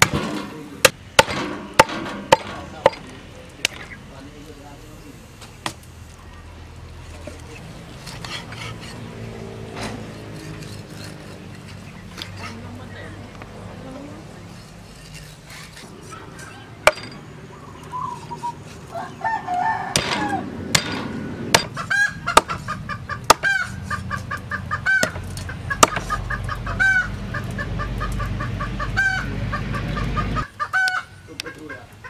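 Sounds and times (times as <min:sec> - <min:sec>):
cleaver chopping on wooden block: 0:21.6 - 0:22.6, 0:25.8 - 0:26.1.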